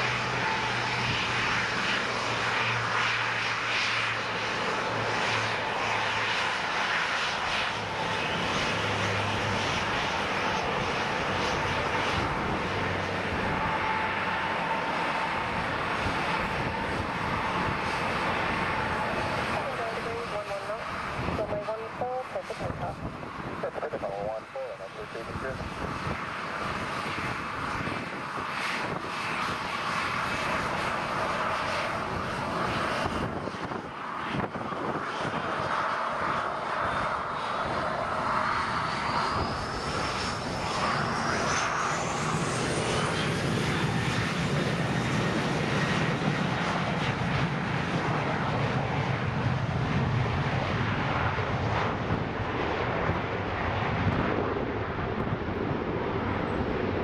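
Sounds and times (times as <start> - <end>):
jet engines running: 0.0 - 57.0.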